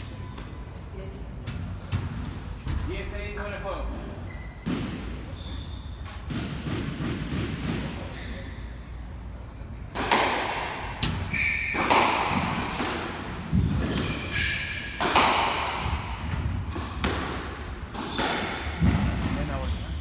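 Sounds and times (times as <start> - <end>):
squash ball hitting court walls: 4.6 - 8.5, 9.8 - 19.7
shoes squeaking on wooden floor: 5.3 - 6.2, 11.2 - 14.9.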